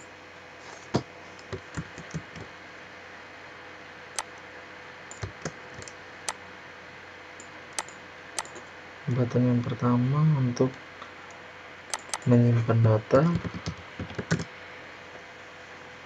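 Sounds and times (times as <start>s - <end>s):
faint steady hum: 0.0s - 16.0s
mouse and keyboard clicks: 5.1s - 6.0s, 7.8s - 8.6s, 11.9s - 12.3s.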